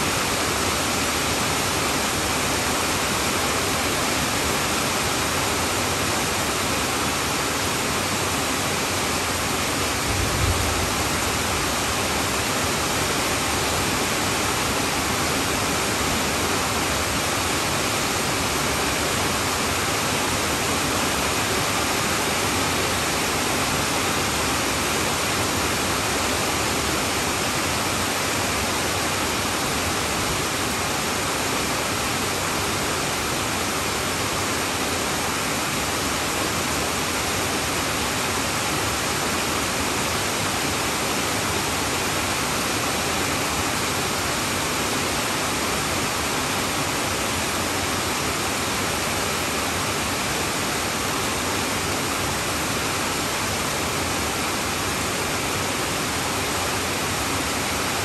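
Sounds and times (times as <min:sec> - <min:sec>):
heavy rain on a tin roof: 0:00.0 - 0:58.0.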